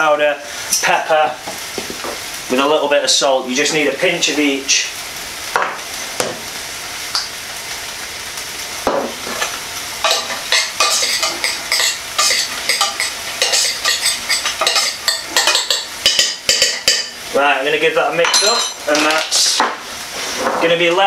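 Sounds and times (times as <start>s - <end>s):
pan sizzling: 0.0s - 21.0s
rice stirred in metal saucepan: 9.3s - 17.2s
scraping against pan: 10.1s - 15.9s.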